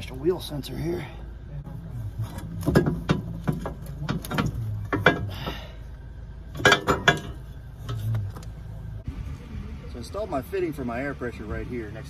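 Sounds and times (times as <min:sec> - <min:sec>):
steel spring knocking and clanking: 0:02.3 - 0:05.7, 0:06.5 - 0:08.2.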